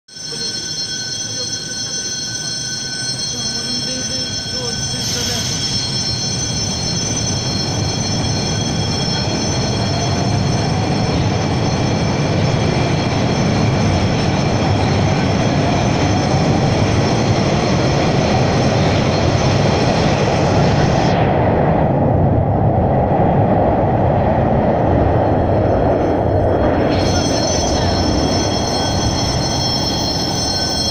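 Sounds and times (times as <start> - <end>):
metro train high whine: 0.1 - 30.9
faint rising whine: 0.2 - 30.9
wheels rumbling on rail: 0.2 - 30.9.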